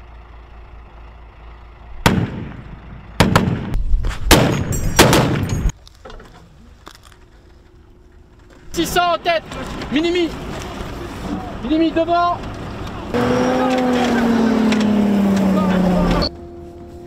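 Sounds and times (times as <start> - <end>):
gunshots: 2.0 - 2.6, 3.2 - 5.7.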